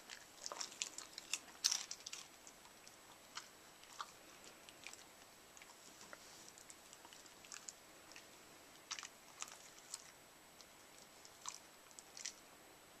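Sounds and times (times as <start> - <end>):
dog crunching popcorn: 0.0 - 12.4.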